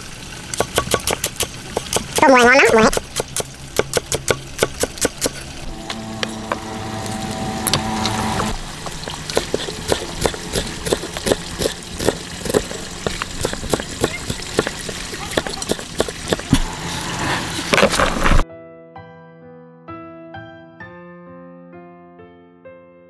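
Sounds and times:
knife chopping on wooden block: 0:00.6 - 0:02.2
steady drone: 0:04.4 - 0:13.9, 0:16.2 - 0:18.4.

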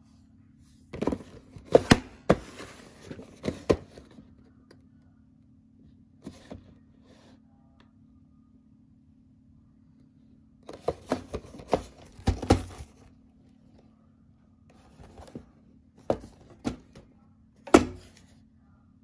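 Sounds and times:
cardboard box being handled: 0:10.7 - 0:13.0
knocks on cardboard box: 0:10.8 - 0:12.8.

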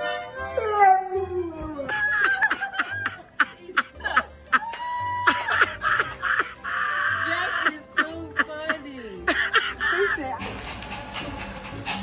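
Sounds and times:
people laughing: 0:01.8 - 0:10.4.

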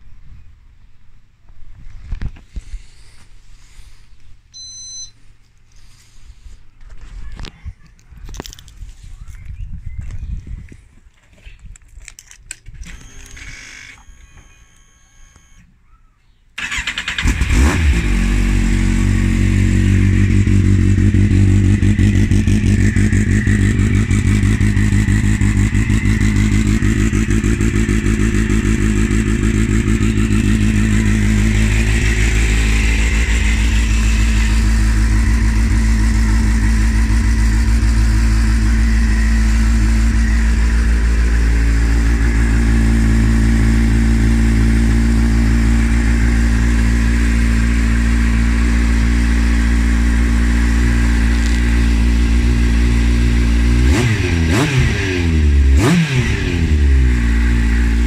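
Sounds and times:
motorcycle engine cranking: 0:16.6 - 0:18.0
motorcycle engine idling: 0:18.4 - 0:53.7.

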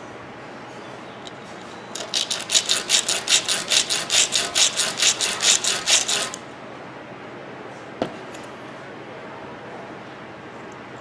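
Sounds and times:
carbon brush rasping on sandpaper: 0:02.1 - 0:06.4.

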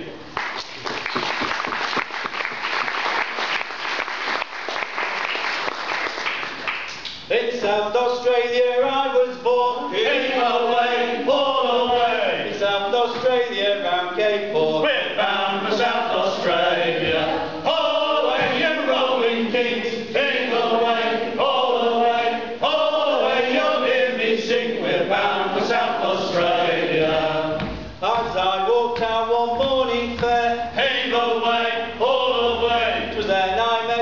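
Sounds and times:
men singing in chorus: 0:07.6 - 0:34.0.

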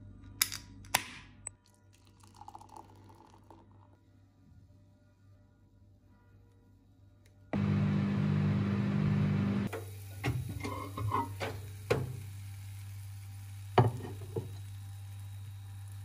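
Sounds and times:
microwave oven humming: 0:07.5 - 0:16.0.

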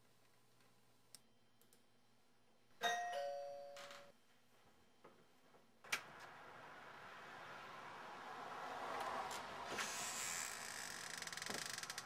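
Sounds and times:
two-tone doorbell chime: 0:02.8 - 0:04.1.

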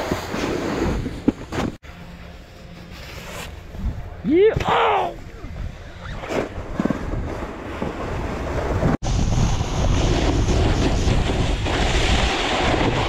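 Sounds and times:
snowboard edges scraping snow: 0:00.0 - 0:04.2, 0:06.0 - 0:13.0
wind rushing over microphone: 0:05.2 - 0:13.0.

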